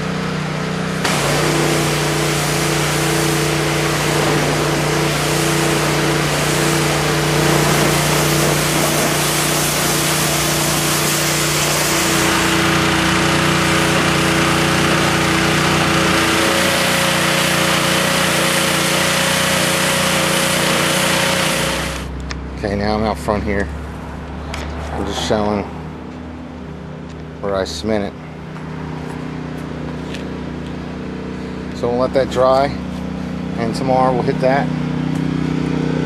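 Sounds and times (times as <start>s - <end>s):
pressure washer motor hum: 0.0s - 22.3s, 28.4s - 36.0s
pressure washer spray hissing: 1.0s - 22.1s.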